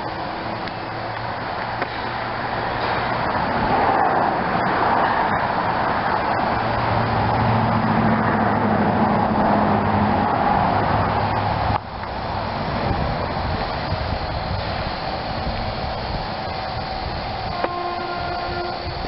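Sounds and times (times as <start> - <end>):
car engine hum: 0.0 - 19.0
road noise: 0.0 - 19.0.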